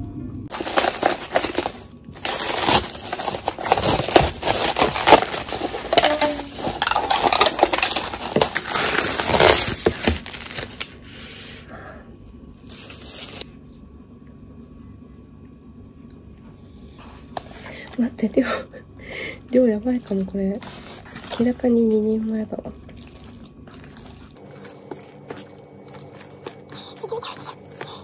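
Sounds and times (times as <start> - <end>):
plastic wrap crinkling: 0.5 - 11.1, 12.7 - 13.4.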